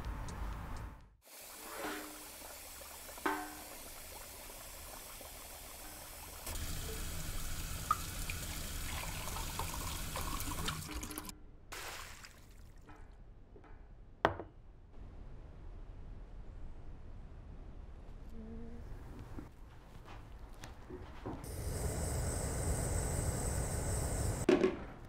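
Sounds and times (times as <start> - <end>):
tap water running into steel sink: 1.3 - 11.3.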